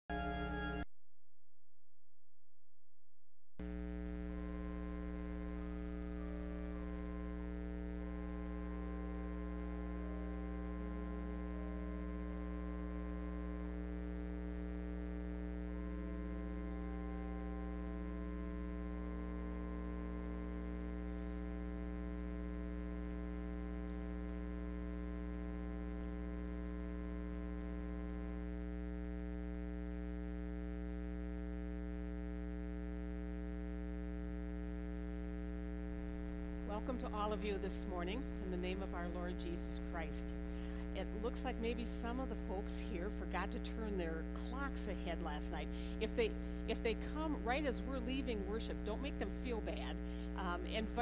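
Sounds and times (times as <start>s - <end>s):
slow music of long chords: 0.0s - 0.9s, 4.3s - 29.3s
low electrical hum: 3.6s - 51.0s.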